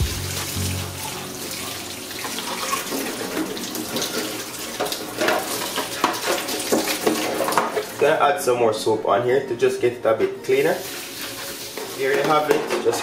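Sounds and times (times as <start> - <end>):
tap water splashing on metal tray: 2.2 - 8.0.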